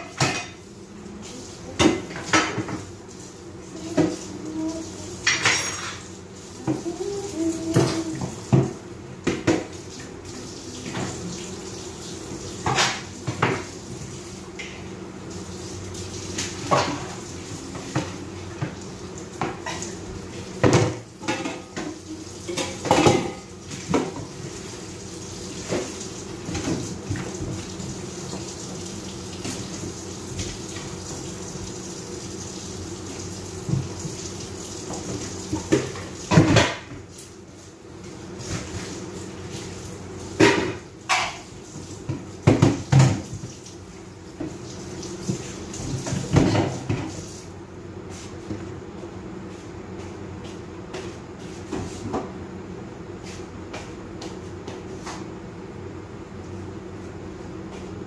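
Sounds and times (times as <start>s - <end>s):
dishes clinking in sink: 0.0s - 0.6s, 1.7s - 2.9s, 5.2s - 7.0s, 19.4s - 20.0s, 20.6s - 24.3s, 40.4s - 41.5s
running tap water: 0.0s - 47.6s.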